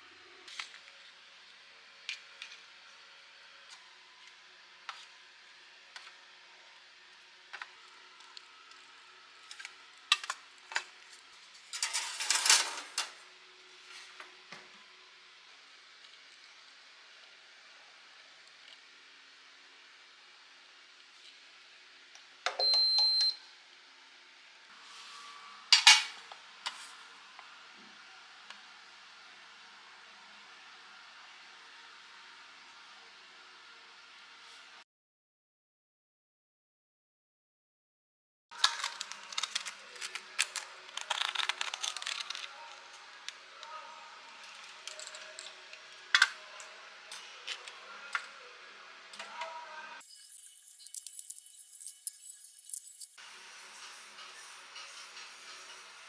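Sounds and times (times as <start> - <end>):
metal baking tray clattering: 11.7 - 13.2
high electronic beep: 22.6 - 23.4
knife scraping foil cup: 38.6 - 42.7
foil crinkling: 38.6 - 43.0.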